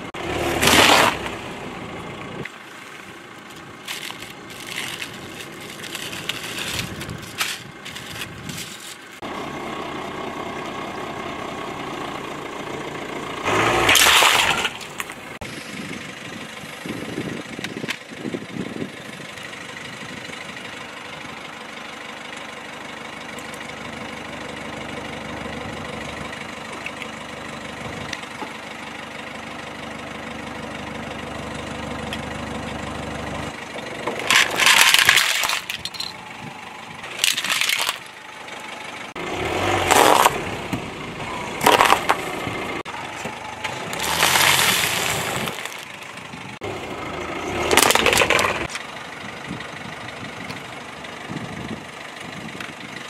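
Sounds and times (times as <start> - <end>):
car engine idling: 1.2 - 13.8, 14.5 - 53.0
objects set down on asphalt: 2.4 - 9.2, 34.0 - 36.2, 37.1 - 38.2, 41.6 - 42.4, 43.1 - 46.3, 47.6 - 48.8.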